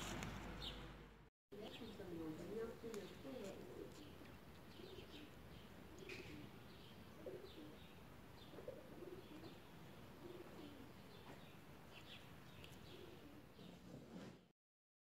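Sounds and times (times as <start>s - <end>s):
small birds chirping: 0.6s - 0.9s, 1.6s - 13.8s
pigeon cooing: 3.4s - 11.1s, 12.8s - 13.7s.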